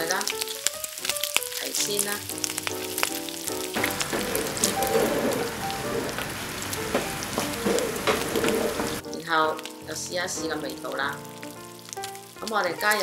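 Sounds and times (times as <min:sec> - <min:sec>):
background music: 0:00.0 - 0:13.0
food sizzling in a wok: 0:00.0 - 0:13.0
wooden spatula scraping pan: 0:03.8 - 0:09.0.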